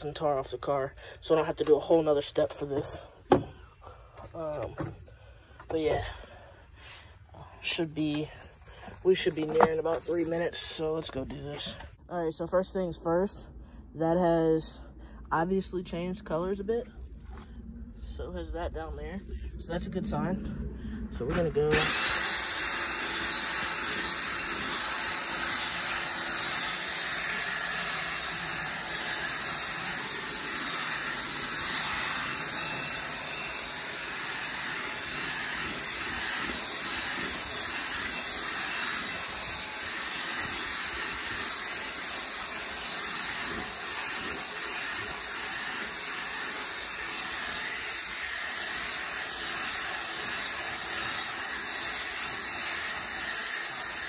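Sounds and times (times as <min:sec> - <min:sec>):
drill brush scrubbing fabric: 0:21.2 - 0:54.0.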